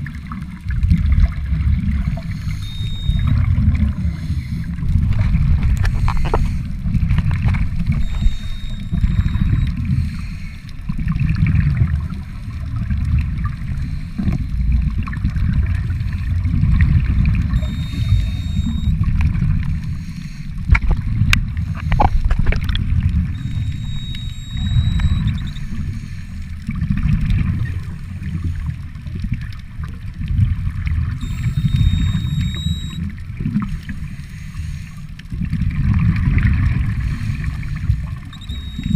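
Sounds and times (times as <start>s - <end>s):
underwater rumbling and gurgling: 0.0s - 38.9s
sharp clicks: 2.2s - 3.4s, 5.6s - 10.0s, 17.5s - 19.0s, 23.4s - 25.8s, 31.2s - 33.0s, 38.4s - 38.9s.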